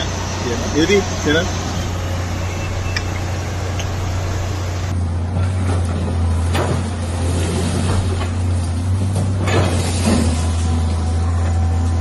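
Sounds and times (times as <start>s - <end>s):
excavator diesel engine drone: 0.0s - 12.0s
falling masonry crashing: 6.5s - 10.9s.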